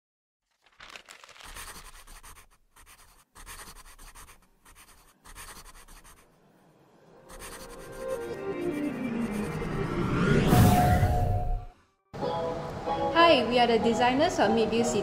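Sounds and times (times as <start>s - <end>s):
pencil scratching on paper: 1.0s - 6.4s, 7.3s - 9.8s.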